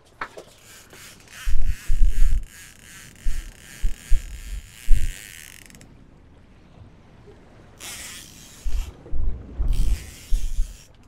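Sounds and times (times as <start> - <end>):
fishing reel clicking and whirring: 0.5 - 5.8, 7.8 - 9.0, 9.7 - 11.0.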